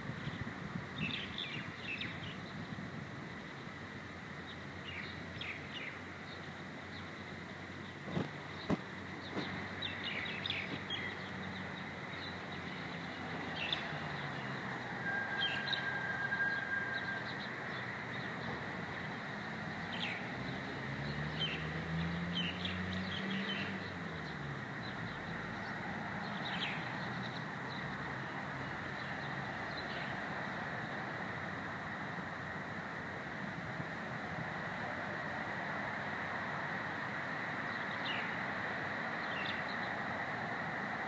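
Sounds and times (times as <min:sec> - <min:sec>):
outdoor background noise: 0:00.0 - 0:41.0
small birds chirping: 0:00.2 - 0:02.8, 0:04.4 - 0:14.7.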